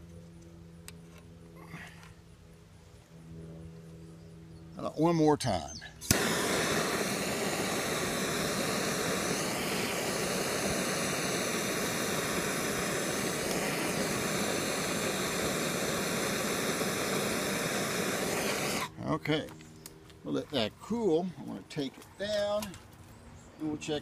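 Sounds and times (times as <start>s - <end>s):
gas torch igniter click: 6.0s - 18.9s
gas torch flame hissing: 6.0s - 19.0s.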